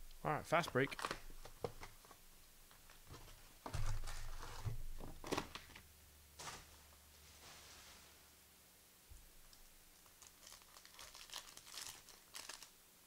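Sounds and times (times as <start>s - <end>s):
wrapper tearing and crinkling: 0.9s - 1.2s, 9.5s - 12.8s.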